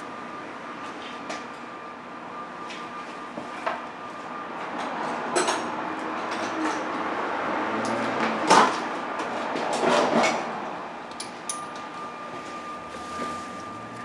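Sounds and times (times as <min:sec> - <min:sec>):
hand tools clanking on metal: 0:07.8 - 0:08.7, 0:11.1 - 0:11.9.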